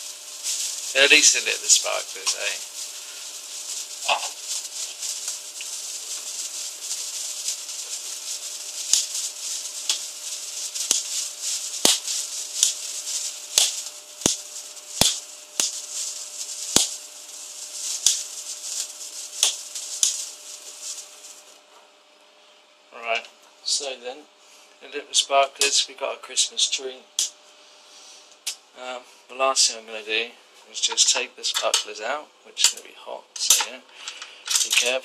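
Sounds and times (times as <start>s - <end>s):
sparkler crackling pops: 0.0s - 21.7s, 25.1s - 27.4s, 30.7s - 35.0s
sparklers fizzing: 0.0s - 21.7s, 25.1s - 30.0s, 30.7s - 35.0s.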